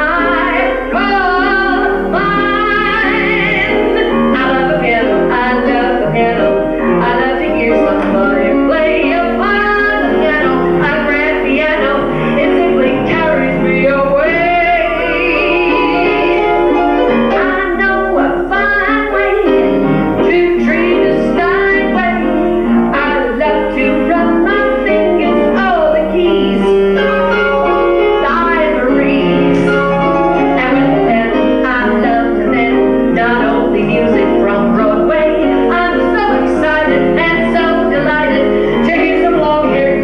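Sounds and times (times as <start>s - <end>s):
piano accompaniment: 0.0s - 40.0s
woman singing into microphone: 0.0s - 40.0s.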